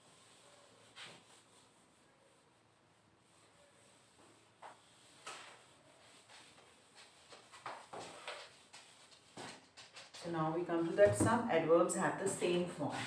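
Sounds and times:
duster wiping a whiteboard: 0.0 - 13.0.

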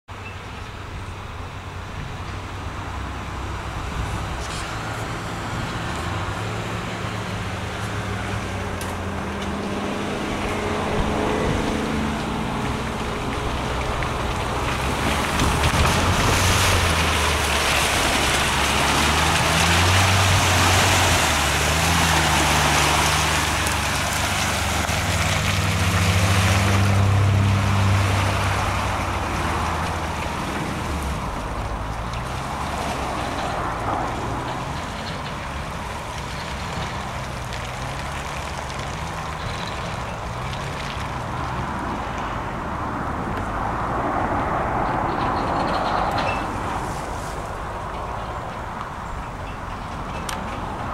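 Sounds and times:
off-road vehicle engine revving: 3.0 - 41.7.

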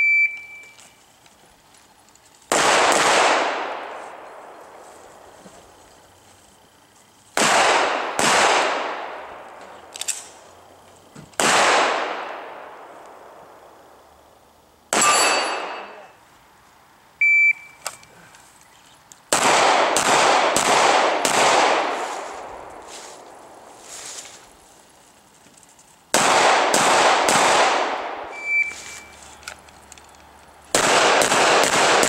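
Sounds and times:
shot timer beep: 0.0 - 0.8, 17.2 - 17.8, 28.3 - 29.1
handgun shots: 11.4 - 12.1, 14.9 - 16.0, 19.3 - 21.9
bullets ringing on steel plates: 14.9 - 16.1.

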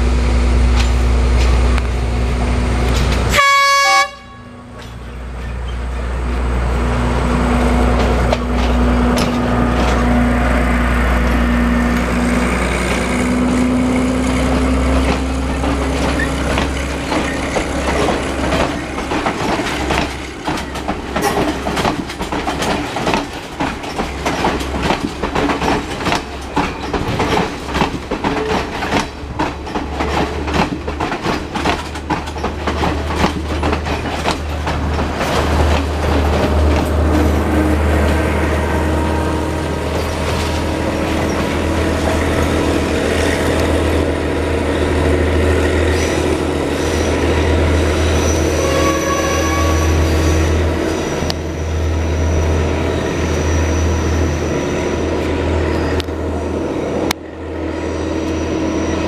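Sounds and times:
diesel engines droning: 0.0 - 30.8, 31.9 - 59.0
train horn: 3.3 - 4.8, 36.7 - 39.9, 48.2 - 50.6
wheels knocking over rail joints: 15.0 - 37.4.

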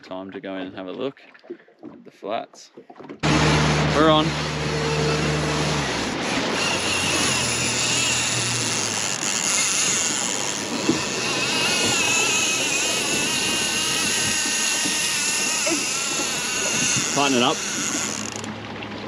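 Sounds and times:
water wash past boat: 1.0 - 19.0
thin high whine: 3.2 - 18.5.

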